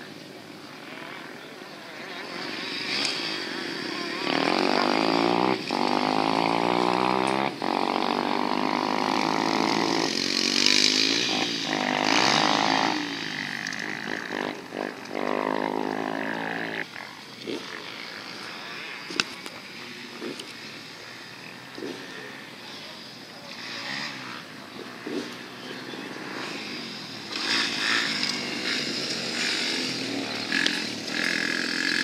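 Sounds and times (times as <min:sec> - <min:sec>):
dirt bike engine revving: 0:00.0 - 0:32.0.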